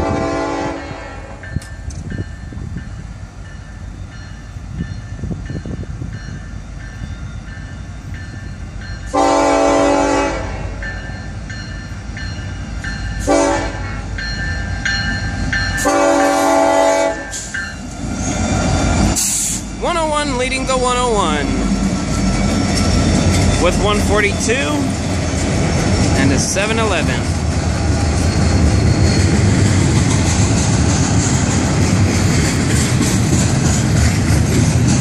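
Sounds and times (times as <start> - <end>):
locomotive horn blasts: 0.0 - 1.4, 9.1 - 10.8, 13.2 - 14.1, 15.8 - 17.5
locomotive rumble: 0.0 - 35.0
railroad crossing bell ringing: 1.2 - 18.0, 19.1 - 30.7.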